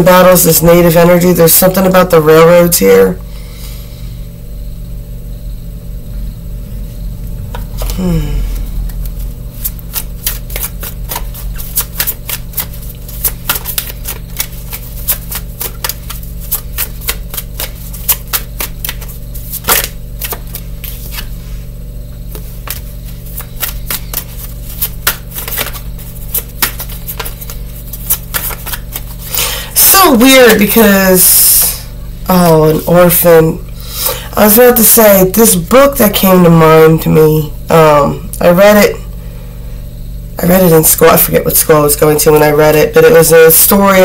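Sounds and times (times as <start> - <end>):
cards being shuffled: 8.8 - 21.4, 22.3 - 29.6.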